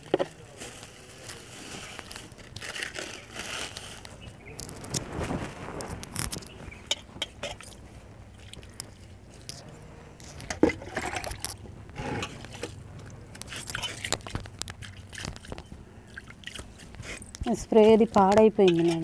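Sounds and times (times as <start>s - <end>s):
water sloshing in steel bowl: 10.4s - 11.6s, 13.4s - 19.0s.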